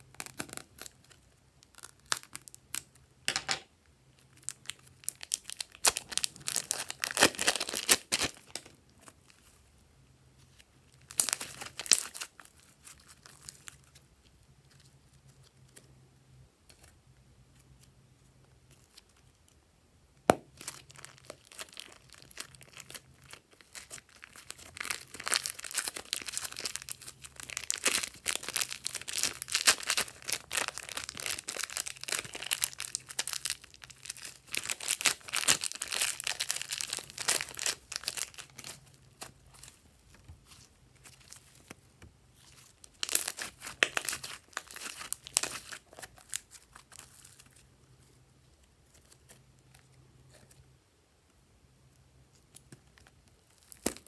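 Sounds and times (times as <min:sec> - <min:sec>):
slime clicking and crackling: 0:00.0 - 0:03.0, 0:20.3 - 0:39.7, 0:42.4 - 0:47.2
plastic bag crinkling: 0:04.4 - 0:08.8, 0:20.6 - 0:41.7, 0:42.4 - 0:47.6.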